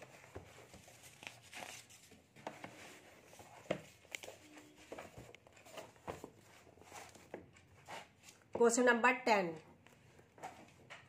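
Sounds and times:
paper rustling and light taps: 0.0s - 8.7s.

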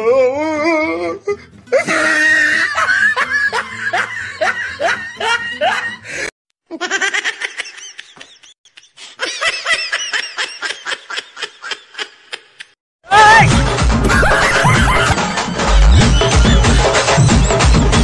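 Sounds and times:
music: 0.0s - 6.3s, 13.1s - 18.0s
high-pitched giggling laughter: 6.7s - 12.7s, 14.0s - 15.2s.

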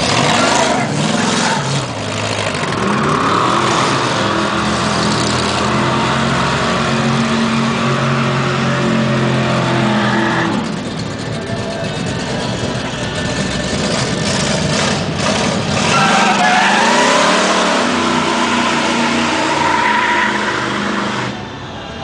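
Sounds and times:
car engine revving: 0.0s - 21.6s.

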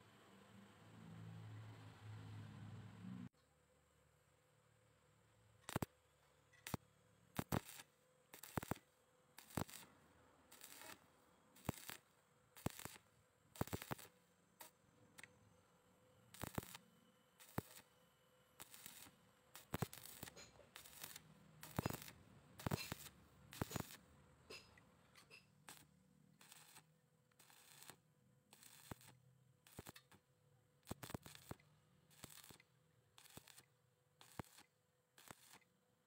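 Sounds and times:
welding arc crackling: 5.6s - 5.9s, 6.6s - 8.8s, 9.4s - 11.0s, 11.6s - 15.3s, 16.3s - 17.9s, 18.6s - 24.1s, 25.6s - 30.2s, 30.8s - 32.6s, 33.2s - 35.6s.

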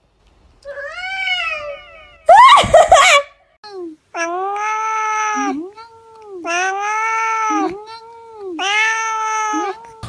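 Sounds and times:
cat meowing: 4.2s - 10.0s.

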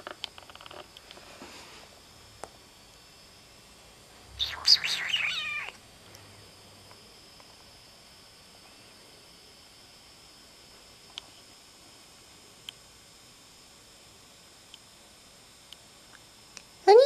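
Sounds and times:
cat meowing: 4.4s - 5.8s.

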